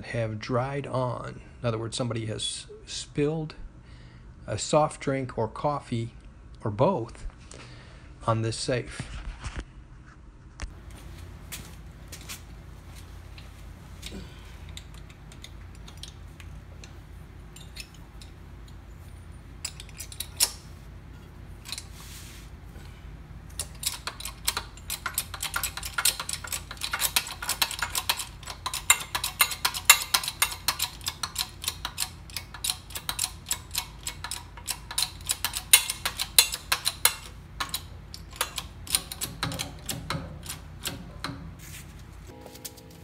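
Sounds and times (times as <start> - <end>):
handling knocks and clicks: 10.7 - 21.9, 23.5 - 43.0
bottle jack pumping metallic clicks: 23.6 - 41.4.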